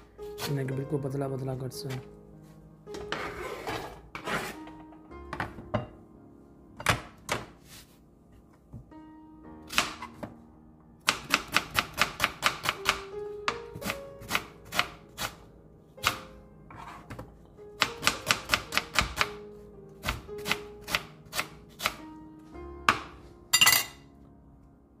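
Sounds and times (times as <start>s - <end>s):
knife chopping on plastic board: 11.0s - 15.4s, 17.8s - 19.4s
knife clatter: 23.6s - 24.0s.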